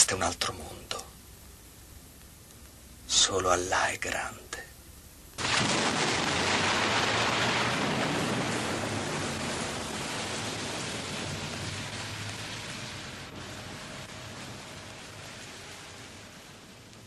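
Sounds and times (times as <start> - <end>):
rushing hiss: 5.4 - 17.0.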